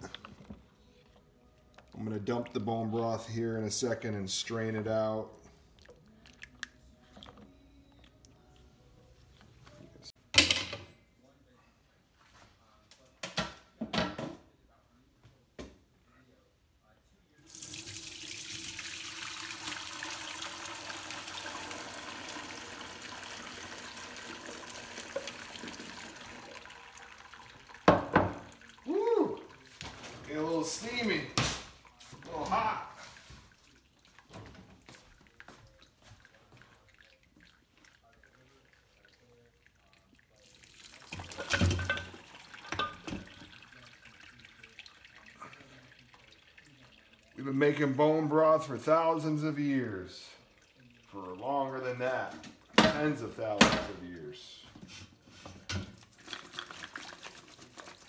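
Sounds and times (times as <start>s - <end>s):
liquid pouring through strainer: 17.4s - 30.9s, 31.8s - 47.9s, 50.4s - 51.5s, 56.0s - 58.0s.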